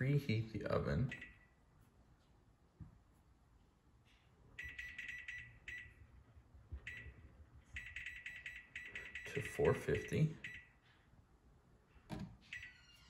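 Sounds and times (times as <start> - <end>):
oven touchpad beeps: 7.8 - 10.8.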